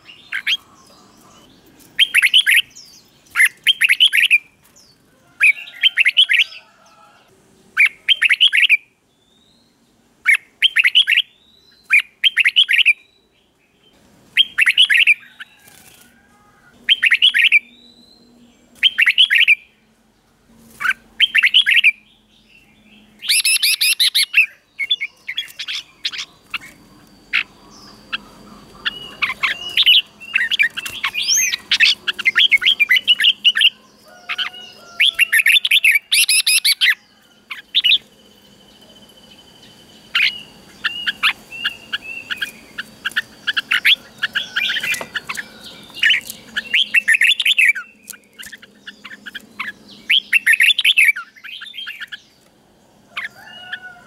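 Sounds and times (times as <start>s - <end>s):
bird singing whistled phrases: 16.9s - 19.7s, 23.2s - 33.8s, 34.4s - 37.0s.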